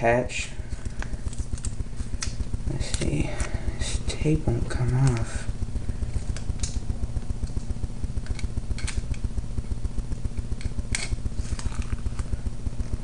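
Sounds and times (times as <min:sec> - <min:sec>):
low pulsing hum: 0:00.0 - 0:13.0
tape peeling crackles: 0:00.8 - 0:03.6.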